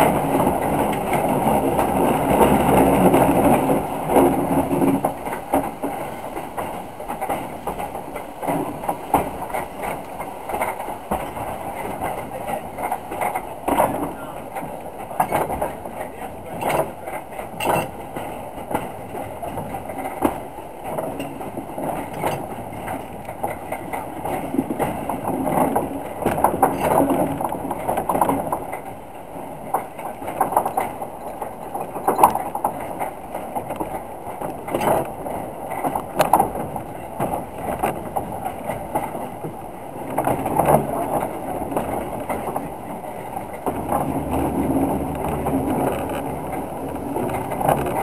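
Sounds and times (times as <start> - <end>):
clanks and knocks from wheels: 0.0 - 48.0
steam locomotive running rumble: 0.0 - 48.0.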